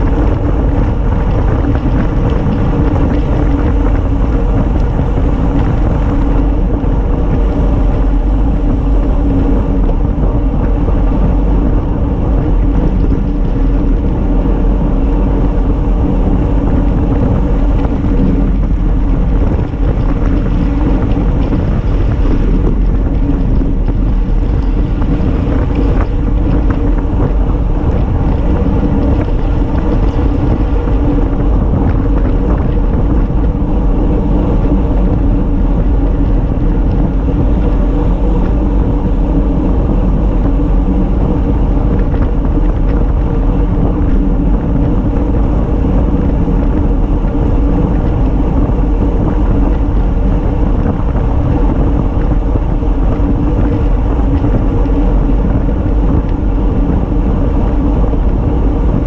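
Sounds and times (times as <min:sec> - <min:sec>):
bicycle road noise on asphalt: 0:00.0 - 0:59.0
wind rush on microphone: 0:00.0 - 0:59.0.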